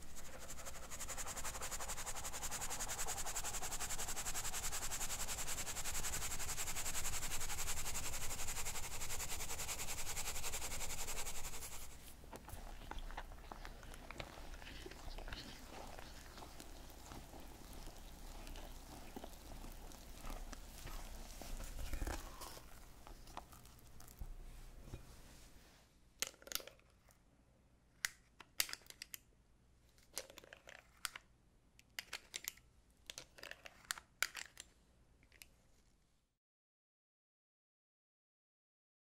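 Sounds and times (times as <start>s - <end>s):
whisk scraping in glass bowl: 0.0s - 12.0s.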